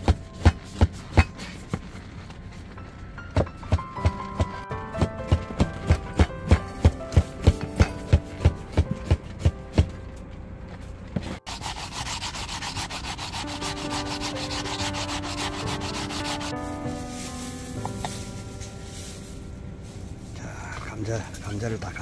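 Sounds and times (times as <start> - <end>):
potato grating on grater: 11.5 - 16.5.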